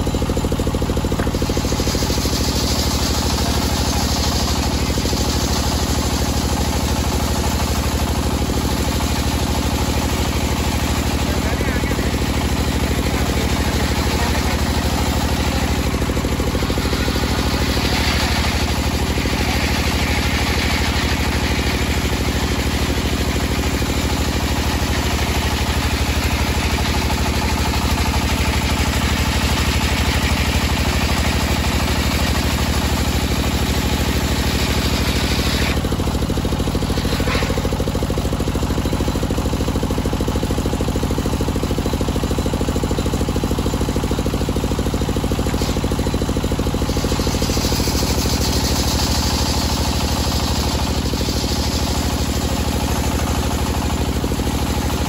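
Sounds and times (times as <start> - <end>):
circular saw cutting wood: 1.1 - 28.2, 30.1 - 37.8, 45.4 - 53.8
saw motor low hum: 8.0 - 27.2.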